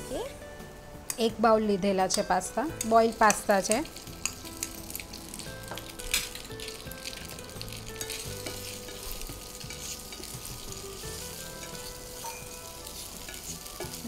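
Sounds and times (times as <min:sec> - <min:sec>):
pasta sizzling in hot oil: 0:01.3 - 0:14.0
spatula scraping a pan: 0:08.0 - 0:14.0.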